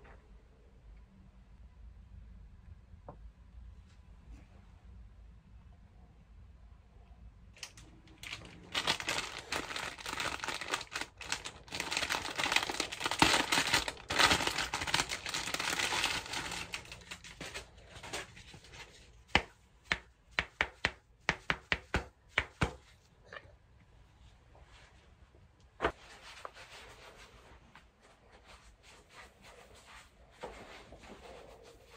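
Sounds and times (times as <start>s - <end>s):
plastic bag crinkling and tearing: 7.6s - 18.1s.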